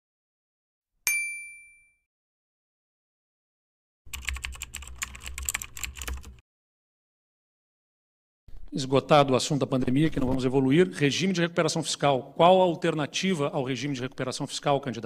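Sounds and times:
bright ding: 0:01.1 - 0:02.0
rapid key clicking: 0:04.1 - 0:06.4.

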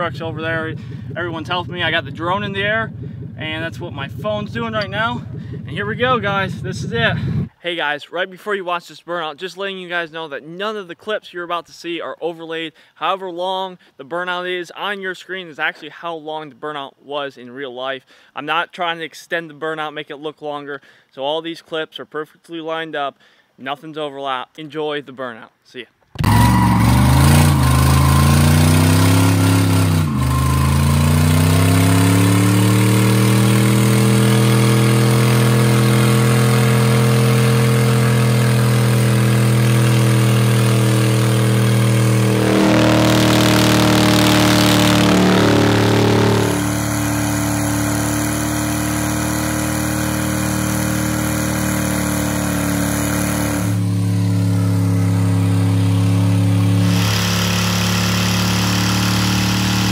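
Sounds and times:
car engine revving high: 0:26.2 - 0:59.9.

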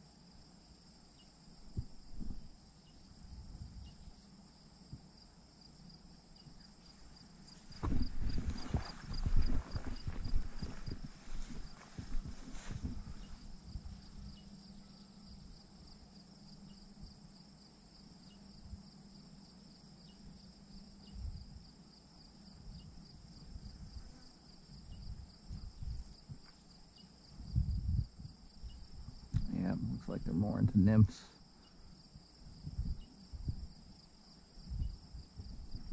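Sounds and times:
crickets and insects trilling: 0:00.0 - 0:35.9
thumps on the microphone: 0:01.7 - 0:02.5, 0:07.8 - 0:13.3.

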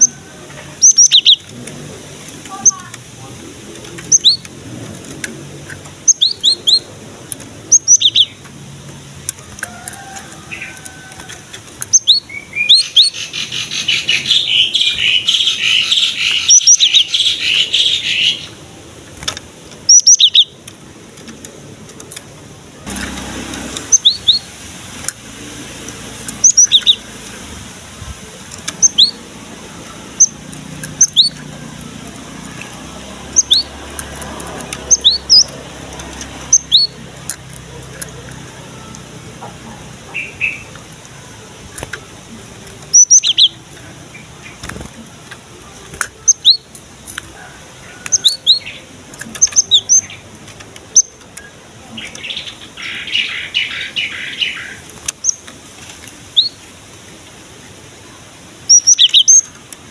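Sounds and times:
bird whistled song notes: 0:00.8 - 0:01.5, 0:04.1 - 0:04.5, 0:06.0 - 0:06.8, 0:07.7 - 0:08.4, 0:11.9 - 0:18.5, 0:19.9 - 0:20.6, 0:23.9 - 0:24.5, 0:26.4 - 0:27.0, 0:28.8 - 0:29.2, 0:31.0 - 0:31.4, 0:33.3 - 0:33.7, 0:42.9 - 0:43.6, 0:56.4 - 0:56.6, 0:58.7 - 0:59.5
bird fast chattering: 0:00.8 - 0:01.6, 0:02.5 - 0:04.8, 0:05.5 - 0:08.4, 0:11.8 - 0:18.6, 0:19.8 - 0:20.6, 0:23.8 - 0:24.5, 0:26.2 - 0:27.2, 0:28.7 - 0:41.4, 0:42.9 - 0:46.7, 0:48.1 - 0:55.4.

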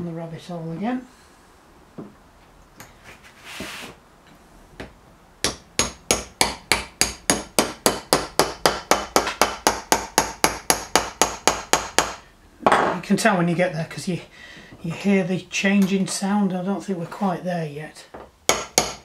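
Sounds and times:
short scrape: 0:03.0 - 0:04.0.

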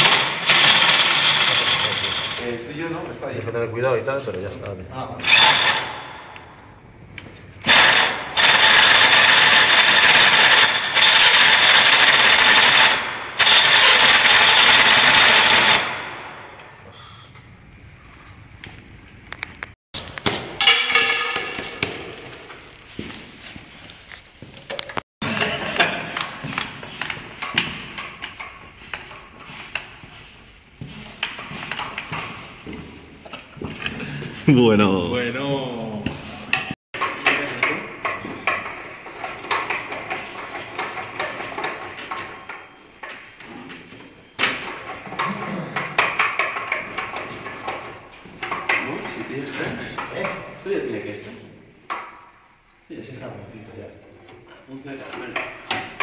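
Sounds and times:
electric drill boring into metal: 0:00.0 - 0:02.4, 0:05.2 - 0:05.9, 0:07.6 - 0:15.9.

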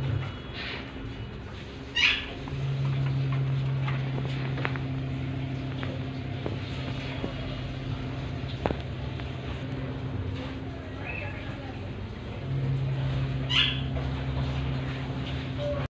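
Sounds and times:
steady low hum: 0:00.0 - 0:15.9
parakeet call: 0:01.9 - 0:02.4, 0:13.4 - 0:13.9.

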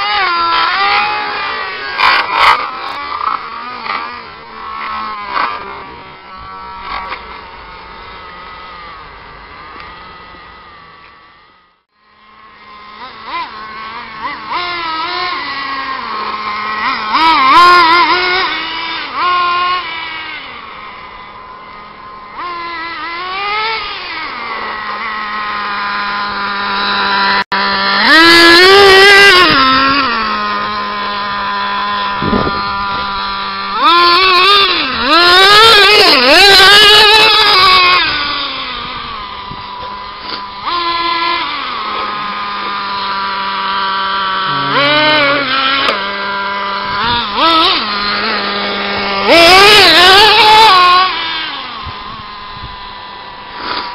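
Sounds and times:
toy truck motor whine revving: 0:00.0 - 0:53.9.

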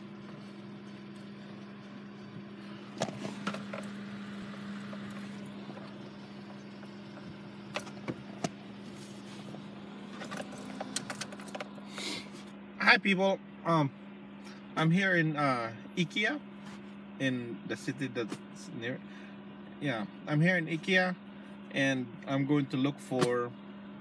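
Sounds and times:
car cabin hum: 0:00.0 - 0:14.2.

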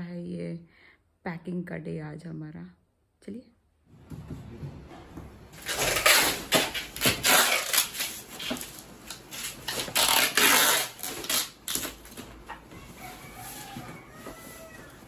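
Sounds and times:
cardboard crackling and scraping: 0:05.6 - 0:15.0.

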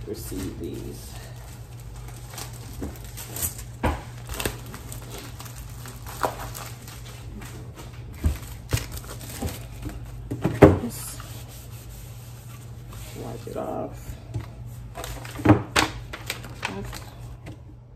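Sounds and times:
plastic packaging crinkling: 0:00.1 - 0:10.3, 0:14.8 - 0:17.4.

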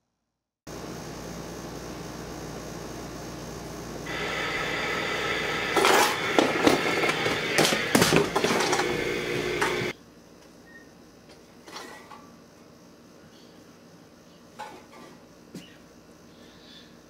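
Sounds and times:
alarm clock buzzer: 0:04.1 - 0:09.9
beer cans clattering: 0:05.7 - 0:09.9.

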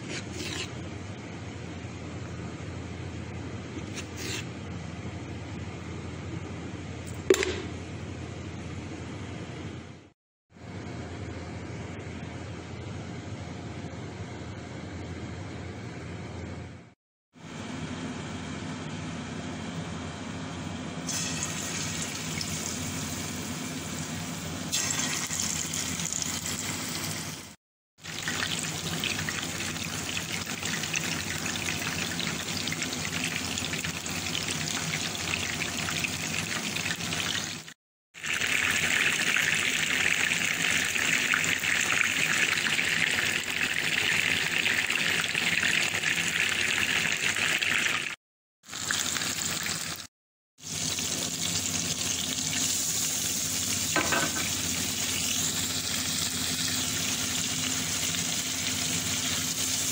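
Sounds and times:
chicken sizzling in oil: 0:21.1 - 0:59.9.

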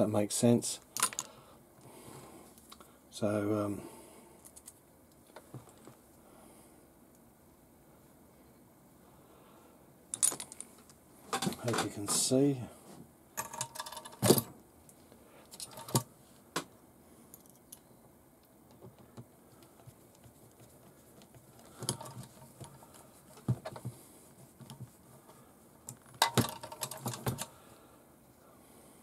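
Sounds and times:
small metal parts clicking: 0:01.0 - 0:01.4, 0:10.1 - 0:12.2, 0:13.4 - 0:14.4, 0:15.5 - 0:16.0, 0:25.9 - 0:27.6.

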